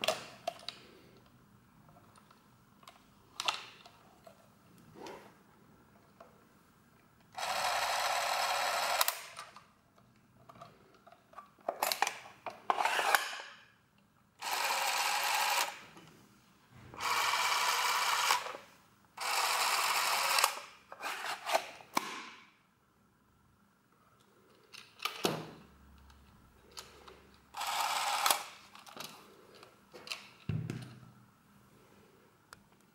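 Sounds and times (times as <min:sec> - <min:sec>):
movie camera motor running: 0:07.4 - 0:09.4, 0:14.4 - 0:15.8, 0:17.0 - 0:18.6, 0:19.2 - 0:20.6, 0:27.6 - 0:28.5.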